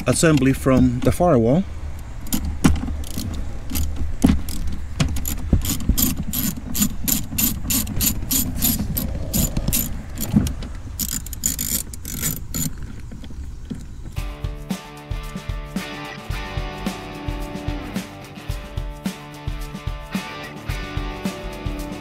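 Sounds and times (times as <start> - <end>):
hand ratchet clicking: 2.0 - 13.1.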